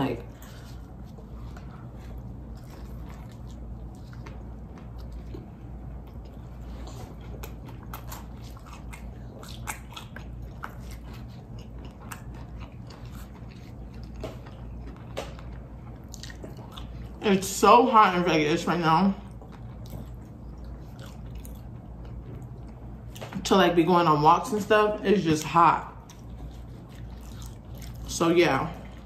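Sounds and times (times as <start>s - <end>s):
chewing fried chicken crunching: 0.1s - 17.6s, 19.2s - 23.4s, 25.4s - 29.0s.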